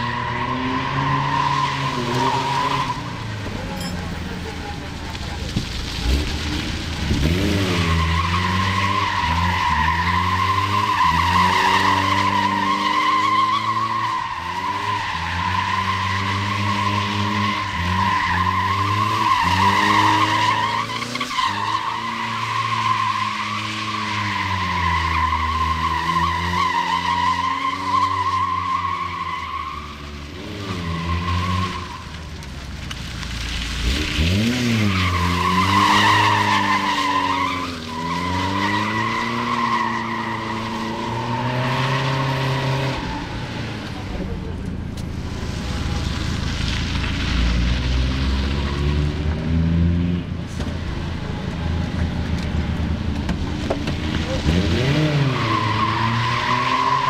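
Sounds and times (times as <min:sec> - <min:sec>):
car engine revving: 0:00.0 - 0:57.0
tyre squeal: 0:54.0 - 0:57.0.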